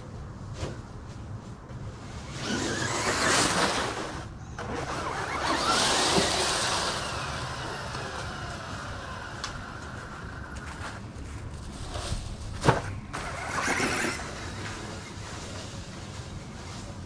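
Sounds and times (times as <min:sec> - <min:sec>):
wheels churning through dry leaves: 0:02.1 - 0:17.0
rc car motor whining: 0:02.4 - 0:11.0, 0:13.1 - 0:15.1.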